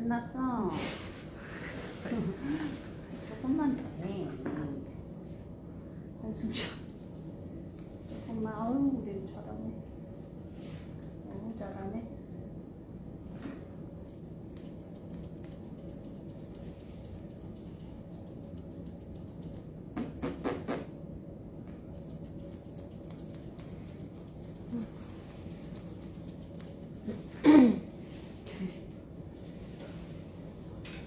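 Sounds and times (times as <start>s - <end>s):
scissors snipping fur: 3.6s - 4.8s, 6.6s - 9.7s, 11.0s - 11.9s, 13.4s - 20.8s, 21.8s - 27.6s.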